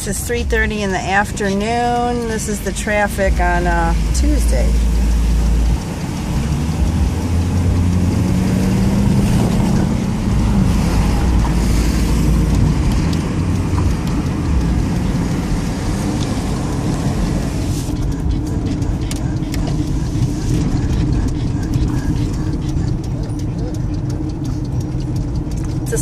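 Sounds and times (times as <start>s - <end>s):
car engine and road rumble: 0.0s - 26.0s
dog breathing heavily: 17.6s - 25.2s.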